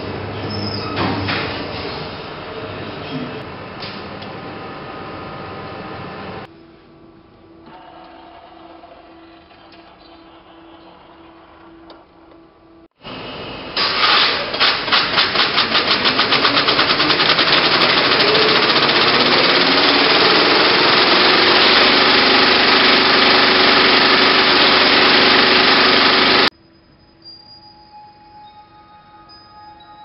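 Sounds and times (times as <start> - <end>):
film projector mechanical clatter: 13.8 - 26.5.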